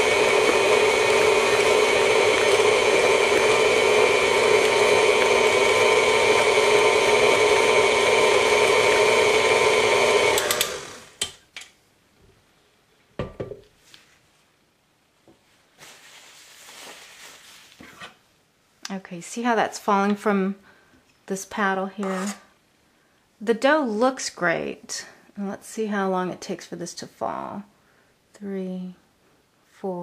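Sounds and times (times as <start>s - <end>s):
stand mixer motor whine: 0.0s - 11.2s
mixer head clicks: 10.2s - 11.4s
knock: 13.2s - 13.6s.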